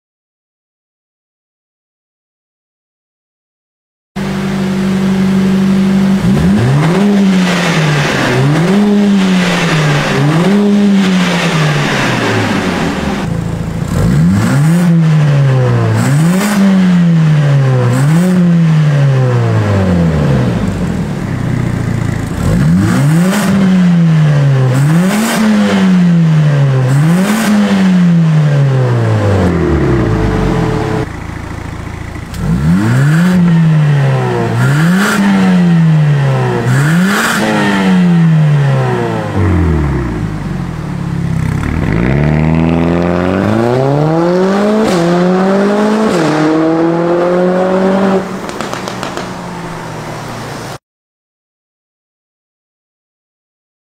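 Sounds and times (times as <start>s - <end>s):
car engine revving: 4.2s - 50.8s
exhaust crackles: 28.2s - 50.5s.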